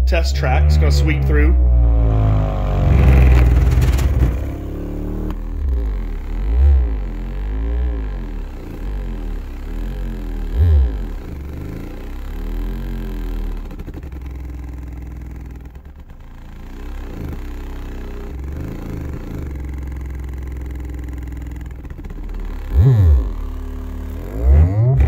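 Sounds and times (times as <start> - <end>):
bass frequency sweeps: 0.0 - 15.1
subwoofer deep bass tones: 0.0 - 25.0.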